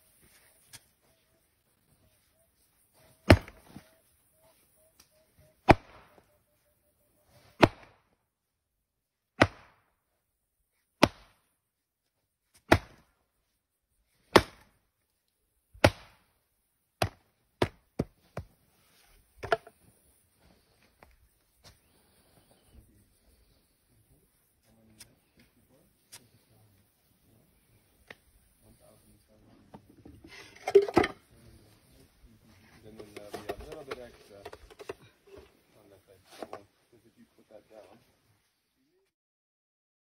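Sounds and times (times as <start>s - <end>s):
wooden pole thudding into mould: 19.4s - 19.7s.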